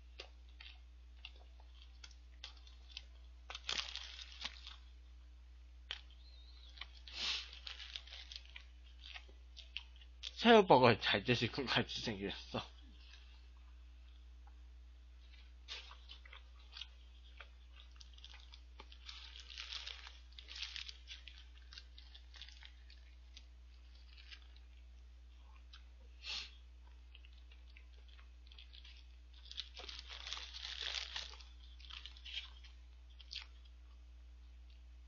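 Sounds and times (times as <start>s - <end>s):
crunchy chewing: 0.0s - 4.9s, 5.8s - 10.4s, 15.2s - 25.9s, 26.8s - 34.0s
steady low hum: 0.0s - 35.0s.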